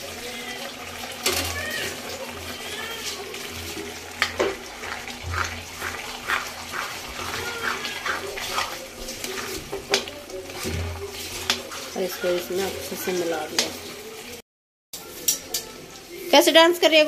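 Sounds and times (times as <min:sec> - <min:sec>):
food bubbling in a pan: 0:00.0 - 0:14.4
spoon stirring and scraping: 0:01.0 - 0:14.4, 0:15.0 - 0:16.5
spoon knocking against pan: 0:05.2 - 0:11.6.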